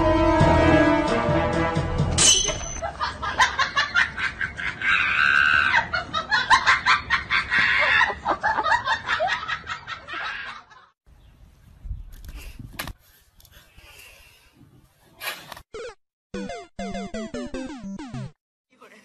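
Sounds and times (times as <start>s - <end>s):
people laughing hard: 2.8s - 11.0s.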